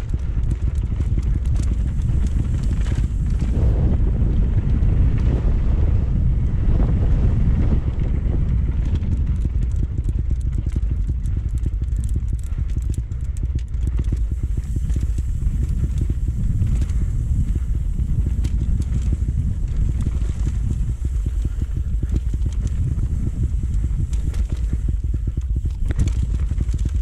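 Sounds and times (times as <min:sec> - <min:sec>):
bike rattling over rocks: 0:00.0 - 0:05.6, 0:06.8 - 0:27.0
wind buffeting microphone: 0:00.0 - 0:27.0.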